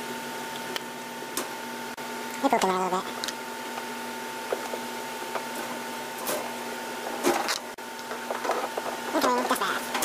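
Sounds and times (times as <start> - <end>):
steady hum: 0.0 - 10.0.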